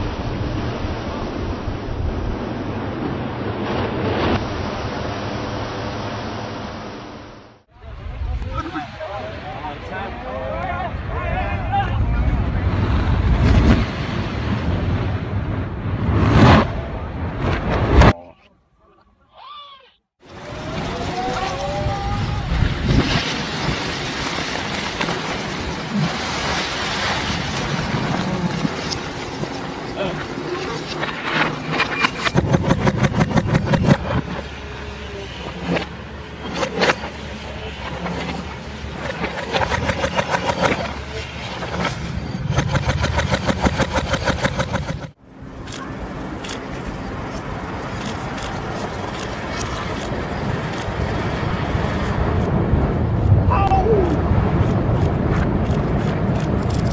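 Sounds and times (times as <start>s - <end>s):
reversed building collapse rumble: 0.0s - 18.5s, 20.2s - 56.9s.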